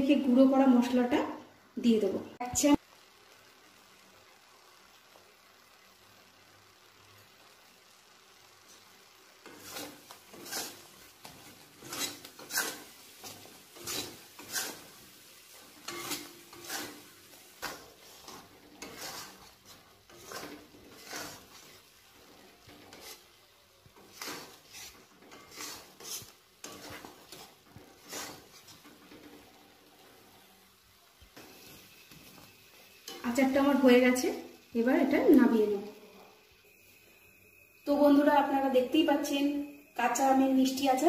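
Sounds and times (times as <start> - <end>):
metal spatula scraping a pan: 9.4 - 30.6, 31.4 - 34.4.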